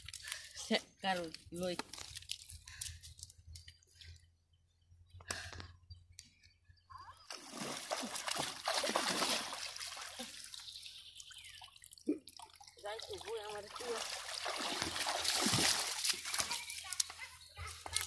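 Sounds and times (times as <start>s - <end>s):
river water splashing: 7.3s - 17.2s.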